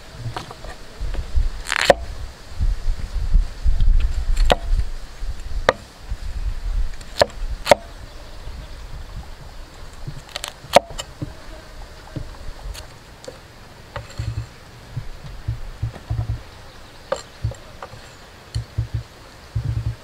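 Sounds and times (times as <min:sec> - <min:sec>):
cleaver chopping on wooden block: 0:01.7 - 0:02.1, 0:04.5 - 0:04.7, 0:05.7 - 0:05.9, 0:07.2 - 0:07.9, 0:10.1 - 0:11.4, 0:15.0 - 0:16.4, 0:17.1 - 0:18.0, 0:18.6 - 0:20.0.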